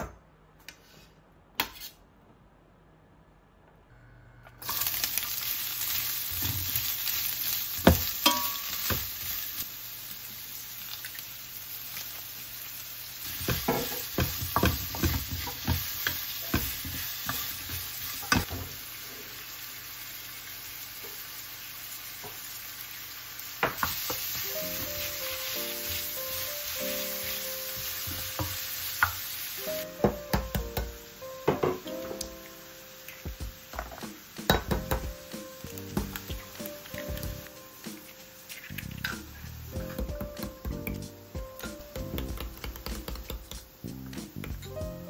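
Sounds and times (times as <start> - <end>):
food sizzling in a frying pan: 4.6 - 45.0
soft piano music: 23.9 - 45.0.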